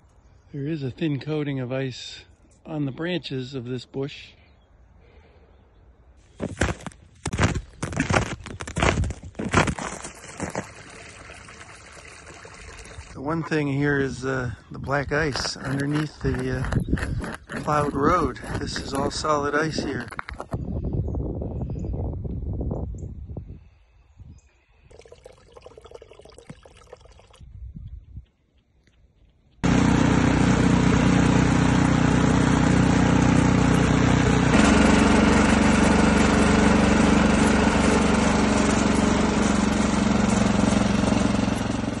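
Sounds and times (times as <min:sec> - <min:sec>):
snowblower engine running: 0:09.8 - 0:20.3, 0:29.6 - 0:42.0.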